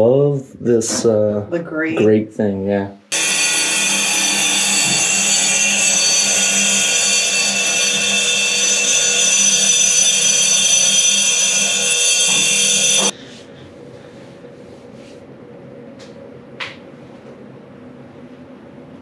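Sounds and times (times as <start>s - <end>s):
power tool whining on stone: 3.1s - 13.1s.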